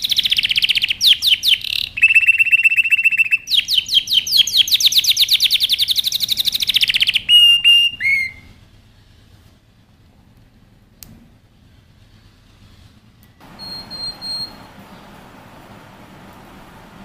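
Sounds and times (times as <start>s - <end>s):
canary singing: 0.0s - 8.6s, 13.4s - 15.3s.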